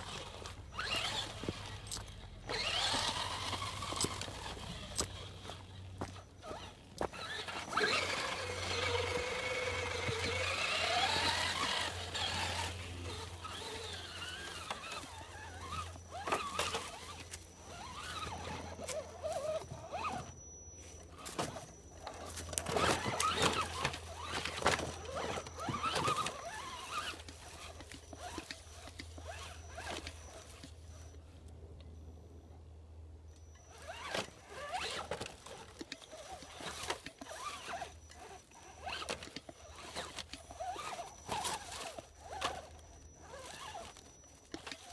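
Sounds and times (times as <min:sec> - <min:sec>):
tyres crunching dry leaves: 0:00.0 - 0:31.0, 0:33.7 - 0:44.9
tyres scraping over rocks: 0:00.0 - 0:31.1, 0:33.6 - 0:44.9
electric motor and gears whining: 0:00.0 - 0:32.0, 0:33.2 - 0:44.9.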